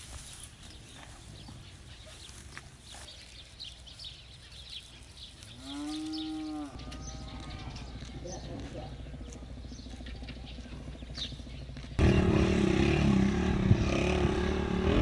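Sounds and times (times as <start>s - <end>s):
cow mooing: 5.6s - 7.8s.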